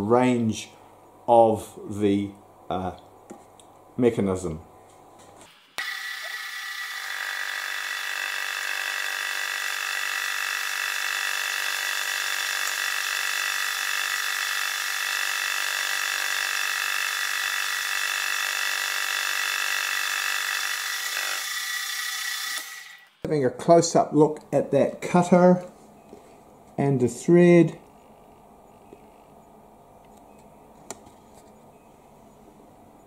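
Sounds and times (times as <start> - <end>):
milling machine high whine: 5.5 - 23.2.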